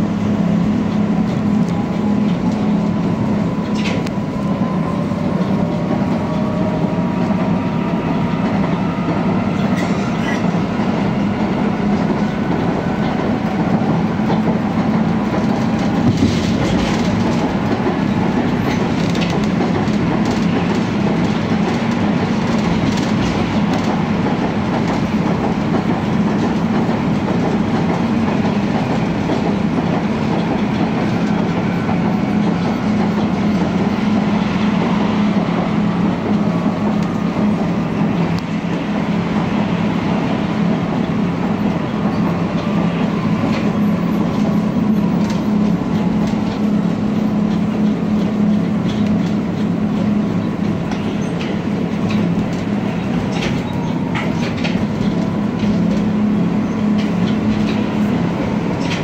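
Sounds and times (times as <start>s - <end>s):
tram running with hum: 0.0s - 59.0s
wheels clacking over rail joints: 0.4s - 59.0s.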